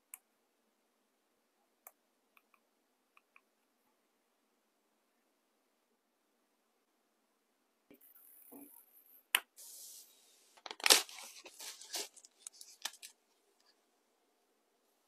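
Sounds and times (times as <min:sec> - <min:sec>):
packaging rustling and tearing: 0:10.6 - 0:13.1.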